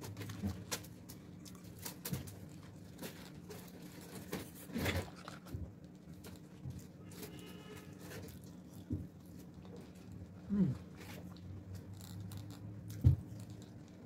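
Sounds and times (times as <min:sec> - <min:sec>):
chewing french fries: 0:00.0 - 0:14.0
paper cup clicks and rustles: 0:11.8 - 0:14.0.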